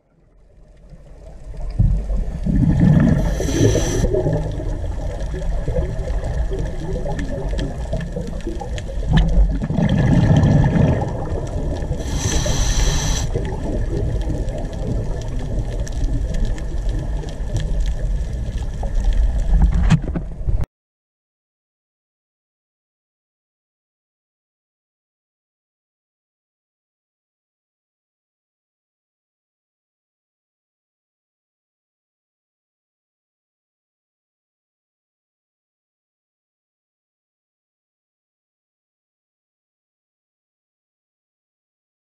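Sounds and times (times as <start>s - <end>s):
underwater water noise: 0.0s - 20.6s
diver breathing through regulator: 2.8s - 4.4s, 11.9s - 13.6s.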